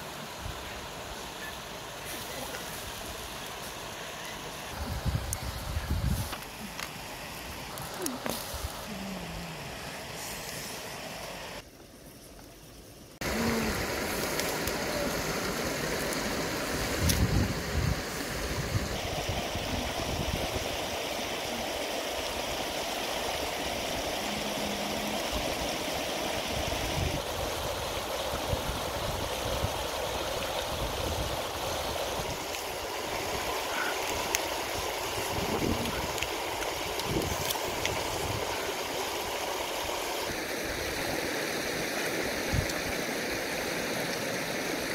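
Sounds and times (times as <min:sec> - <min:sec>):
river rushing over rocks: 0:13.2 - 0:44.9.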